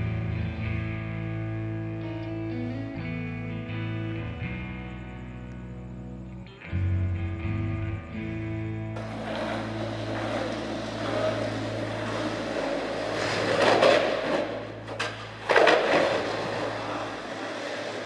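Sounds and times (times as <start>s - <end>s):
skateboards rolling on concrete: 8.9s - 18.0s
skateboard clatter: 9.0s - 18.0s.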